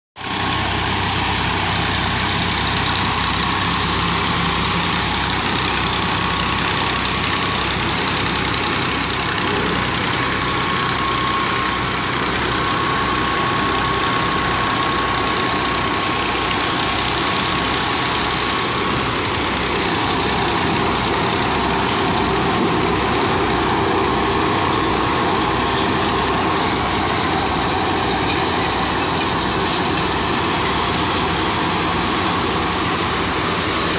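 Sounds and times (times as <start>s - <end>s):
corn sheller mechanical whirr: 0.2s - 33.9s
tractor engine running: 0.2s - 33.9s.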